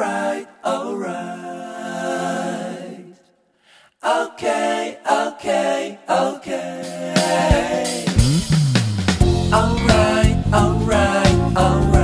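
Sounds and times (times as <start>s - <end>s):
person singing unaccompanied: 9.3s - 12.0s.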